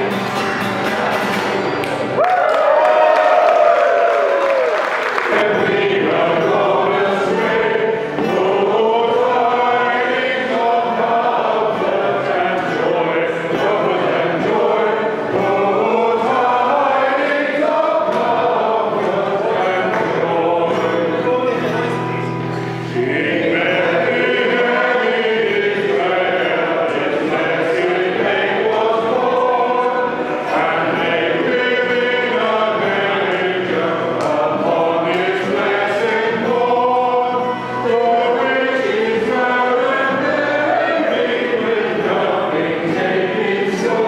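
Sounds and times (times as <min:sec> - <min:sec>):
group of voices singing: 0:00.0 - 0:01.8, 0:02.7 - 0:44.0
acoustic guitar: 0:00.0 - 0:44.0
hand clapping: 0:00.8 - 0:05.5, 0:19.8 - 0:20.2, 0:34.2 - 0:34.5.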